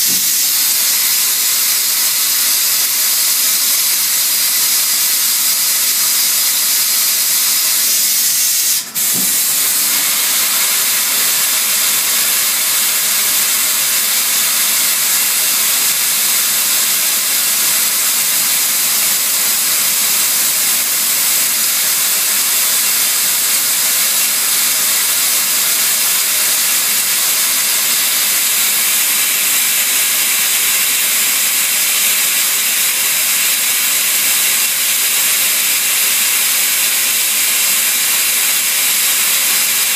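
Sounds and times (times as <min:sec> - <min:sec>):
lathe coolant spray hiss: 0:00.0 - 0:39.9.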